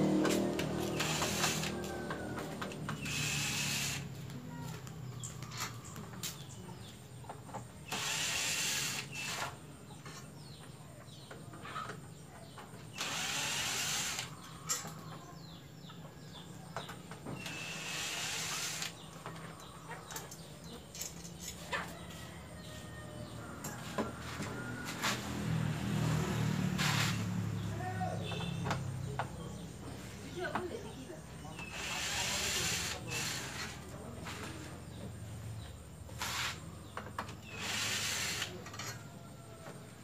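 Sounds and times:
cordless drill running: 0:00.8 - 0:01.8, 0:03.0 - 0:04.1, 0:07.9 - 0:09.5, 0:13.0 - 0:14.3, 0:17.4 - 0:19.0, 0:31.6 - 0:33.8, 0:37.4 - 0:38.5.

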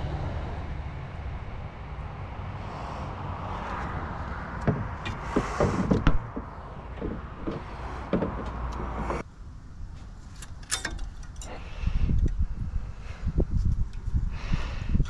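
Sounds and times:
brake pads scuffing and knocking: 0:04.6 - 0:09.2.

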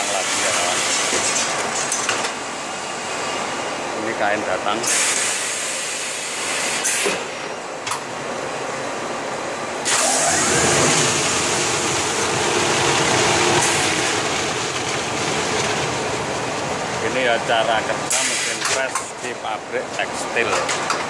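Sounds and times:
press machine hissing: 0:09.8 - 0:15.8.

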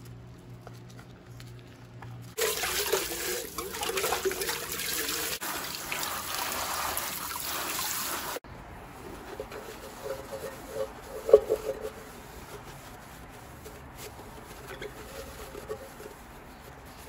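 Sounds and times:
paper towel squeaking on metal pot: 0:05.4 - 0:17.0.

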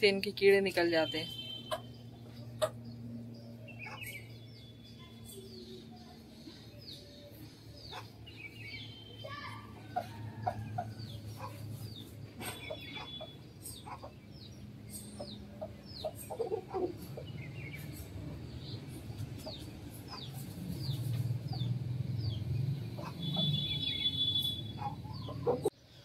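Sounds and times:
small birds chirping: 0:00.7 - 0:25.7
chickens clucking softly: 0:15.2 - 0:17.2.

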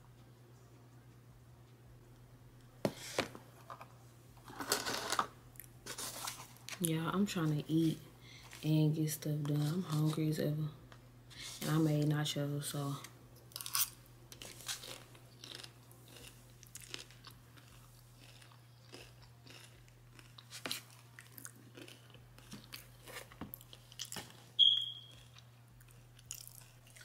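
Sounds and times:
person chewing crunchy chips: 0:13.5 - 0:27.0
high-pitched beep: 0:24.6 - 0:25.1.

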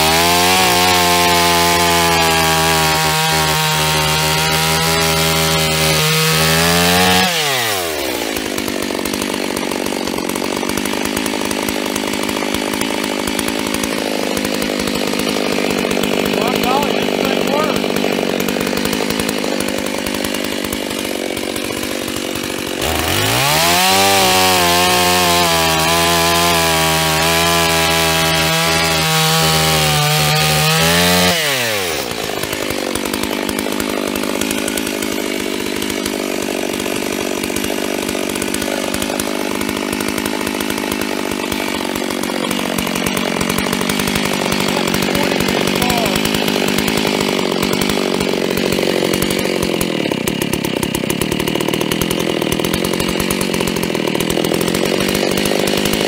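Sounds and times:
chainsaw cutting log: 0:00.0 - 0:56.0.

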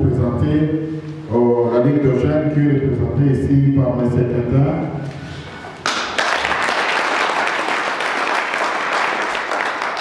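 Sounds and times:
audience applauding: 0:05.8 - 0:10.0.

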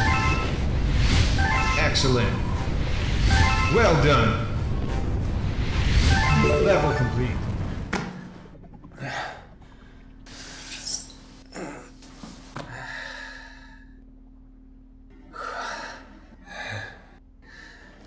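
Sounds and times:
man breathing heavily: 0:12.6 - 0:14.0, 0:15.2 - 0:18.0.

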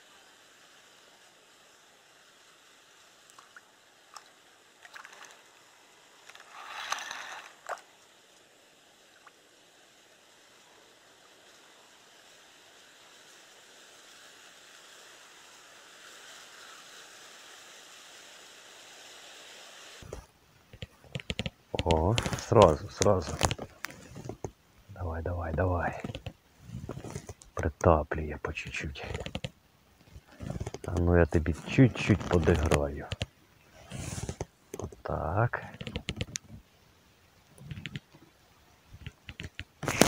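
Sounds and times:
wind hiss: 0:00.0 - 0:40.0
small waves lapping: 0:03.1 - 0:17.2.

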